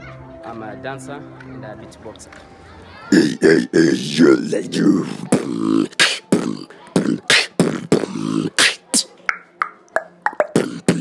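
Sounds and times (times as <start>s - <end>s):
human beatboxing: 3.1s - 11.0s.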